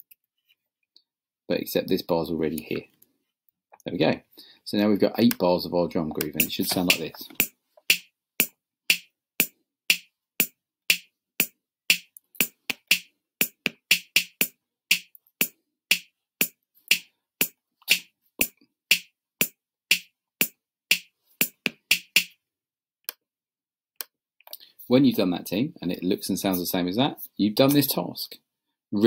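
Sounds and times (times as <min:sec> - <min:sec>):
drum machine beat: 0:06.4 - 0:22.4.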